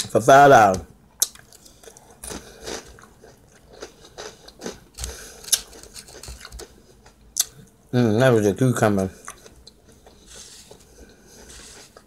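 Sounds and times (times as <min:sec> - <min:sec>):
person chewing crunchy food: 0:01.1 - 0:07.8, 0:09.2 - 0:12.0.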